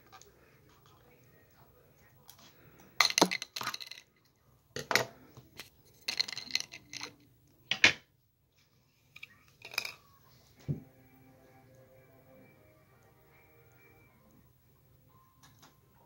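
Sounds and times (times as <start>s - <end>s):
plastic toy bricks clattering: 3.0s - 4.1s, 4.8s - 8.0s, 9.2s - 10.0s.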